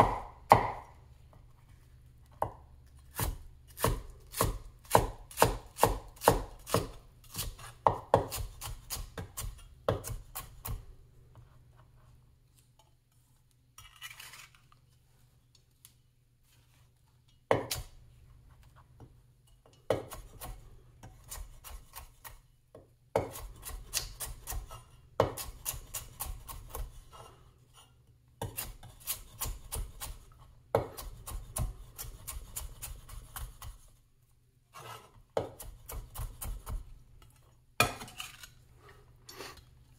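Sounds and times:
cleaver chopping onion on wood: 0.0s - 0.9s, 2.4s - 10.9s, 17.5s - 17.9s, 19.9s - 27.0s, 28.4s - 33.8s, 35.3s - 36.9s
knife scrape: 13.8s - 14.8s, 23.3s - 30.4s, 34.7s - 36.8s, 37.8s - 39.8s.

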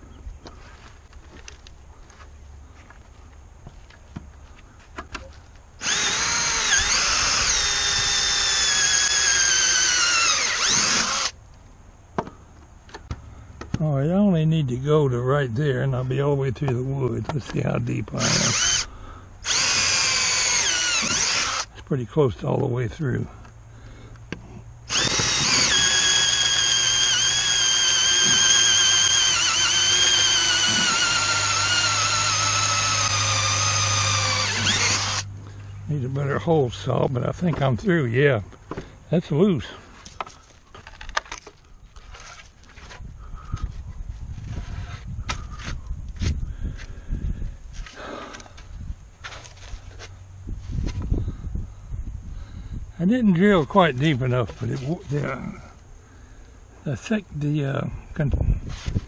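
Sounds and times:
cordless drill motor whine: 5.8s - 11.4s, 18.2s - 21.8s, 24.9s - 35.3s
hole saw cutting wood: 5.8s - 11.4s, 18.2s - 21.7s, 24.9s - 35.3s.

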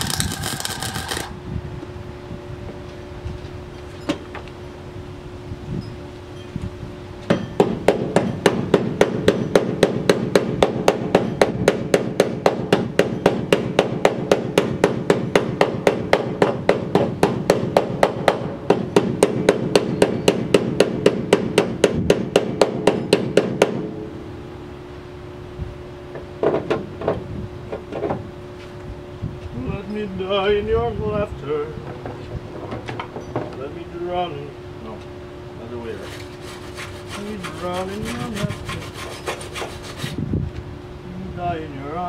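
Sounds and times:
welding crackle: 0.0s - 1.4s.

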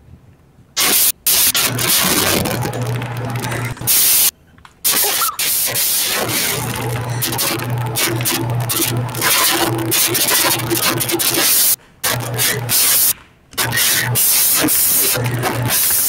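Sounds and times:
low hum: 0.8s - 4.3s, 6.0s - 12.8s
harsh rasping noise: 0.8s - 16.0s.

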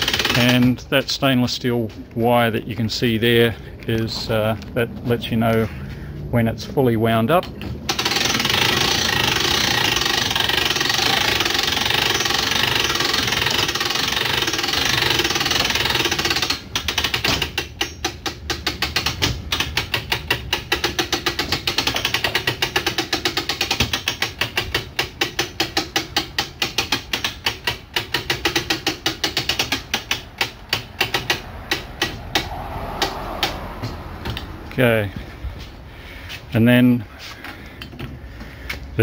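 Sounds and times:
winch ratchet clicking: 0.0s - 0.8s, 7.4s - 33.6s.

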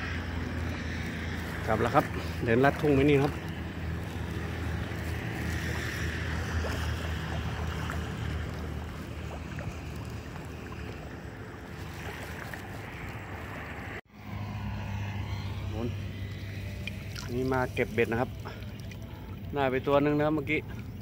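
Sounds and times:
low hum: 0.0s - 21.0s
wind rumbling on microphone: 0.0s - 21.0s.

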